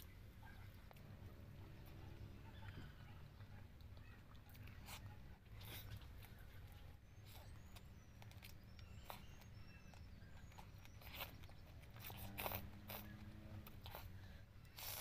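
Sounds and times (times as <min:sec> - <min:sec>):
person chewing and slurping: 0:10.4 - 0:15.0.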